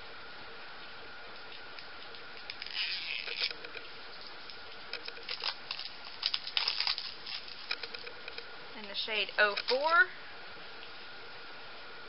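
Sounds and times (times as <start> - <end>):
steady low hiss: 0.0 - 12.0
packaging rustling: 1.8 - 8.4.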